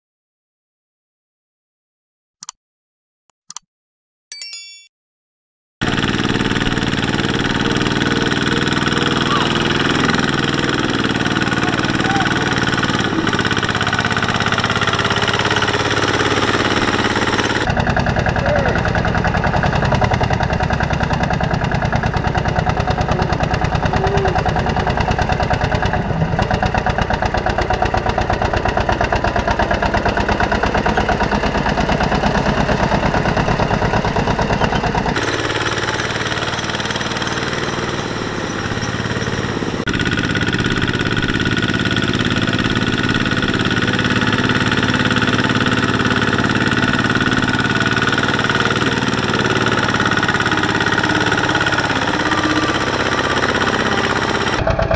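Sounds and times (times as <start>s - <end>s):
diesel engine chugging: 5.8s - 54.9s.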